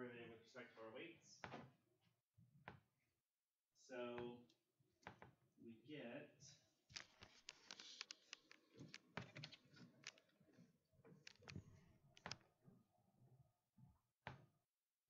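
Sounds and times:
marker writing on whiteboard: 7.0 - 12.4.

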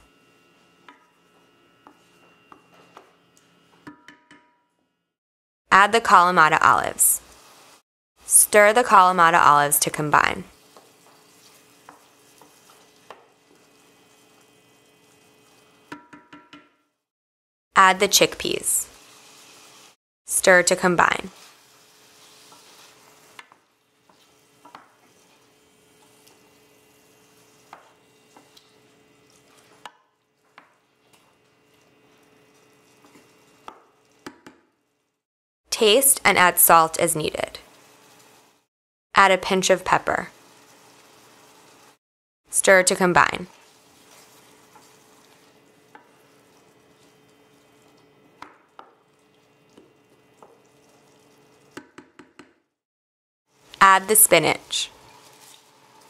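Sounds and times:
wooden spoon stirring sauce: 1.0 - 3.1, 10.5 - 14.5, 21.3 - 33.5, 43.5 - 48.2
spoon knocking against pan: 3.8 - 4.6, 15.9 - 16.8
sauce sizzling faintly: 6.6 - 15.8, 18.1 - 34.2, 35.8 - 38.7, 39.6 - 42.0, 42.9 - 51.8, 53.6 - 56.0
faint simmering: 43.5 - 51.8.

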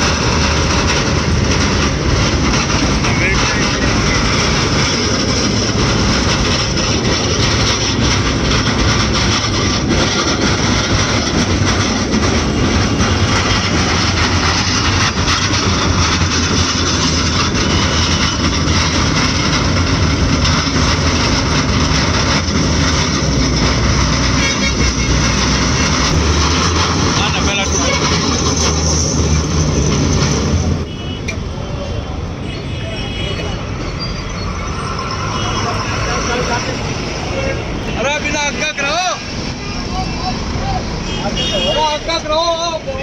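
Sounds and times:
truck trailer rumbling on flat tyre: 0.0 - 30.9.

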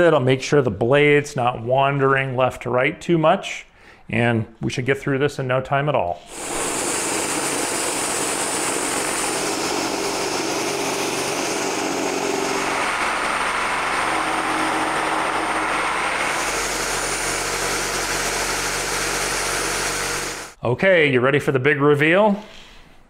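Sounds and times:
reciprocating saw cutting wood: 6.3 - 20.6.

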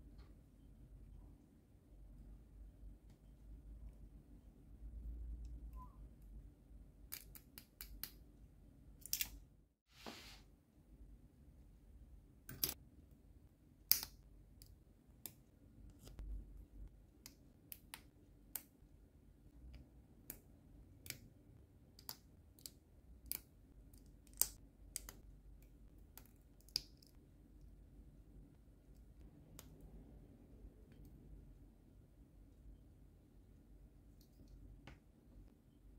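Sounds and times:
plastic parts snapping together: 9.0 - 9.4.

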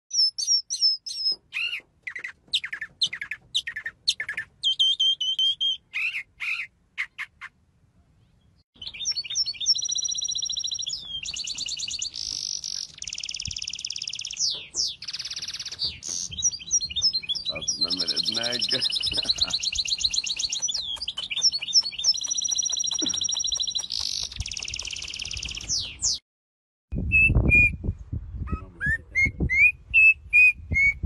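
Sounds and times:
finch trills and twitters: 0.1 - 7.5, 8.8 - 26.2
mockingbird singing: 0.1 - 7.6, 8.2 - 26.2.

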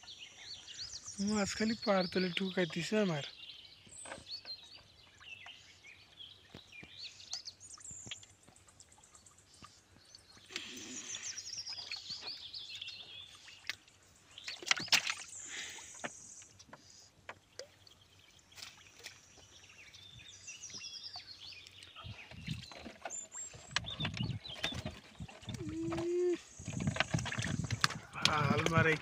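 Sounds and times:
bird chirping: 0.0 - 29.0
water splashing and knocking: 14.4 - 15.3, 22.1 - 29.0.

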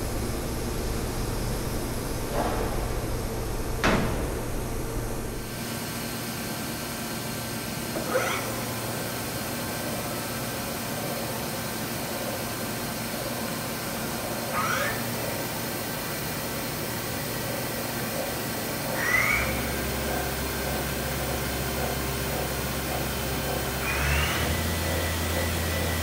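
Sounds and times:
deeper hum: 0.0 - 5.6
milling machine humming: 0.0 - 5.6, 15.9 - 26.0.

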